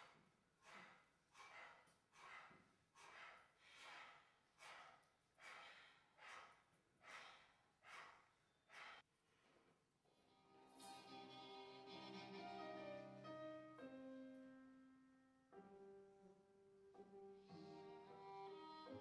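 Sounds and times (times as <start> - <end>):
heavy breathing: 3.0 - 9.0
music: 10.2 - 19.0.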